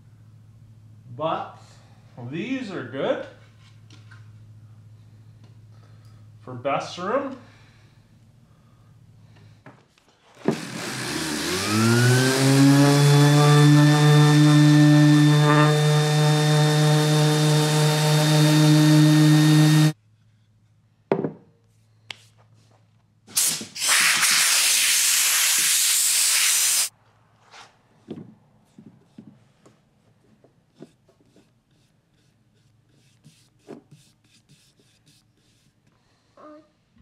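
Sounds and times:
power tool motor hum: 0:10.4 - 0:20.0
hiss of spray or air: 0:23.3 - 0:26.9.

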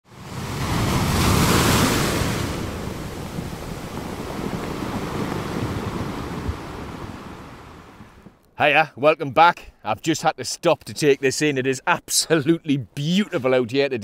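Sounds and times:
waves breaking and washing: 0:00.0 - 0:08.4.

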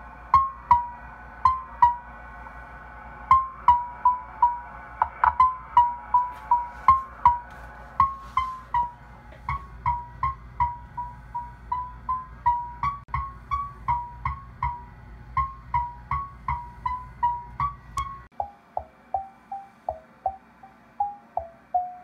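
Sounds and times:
low hum: 0:00.0 - 0:21.8.

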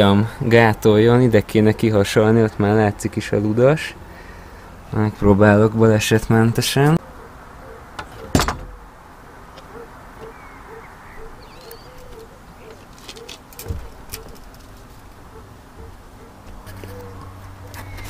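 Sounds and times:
dove cooing: 0:07.0 - 0:18.0
climbing noises: 0:07.9 - 0:10.4, 0:11.9 - 0:18.0
dull thud: 0:08.0 - 0:08.9.

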